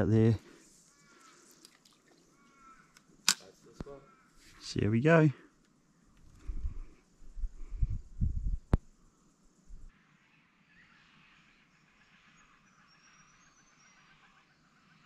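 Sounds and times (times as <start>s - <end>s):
microphone handling rumbles: 7.4s - 8.8s
faint high bird chirps: 10.3s - 15.0s.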